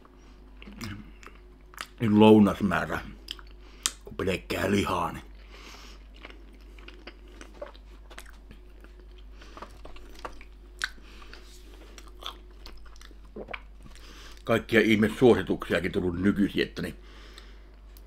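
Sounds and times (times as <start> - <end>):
man chewing with wet mouth smacks: 0.0 - 2.0, 3.2 - 4.1, 5.3 - 14.5.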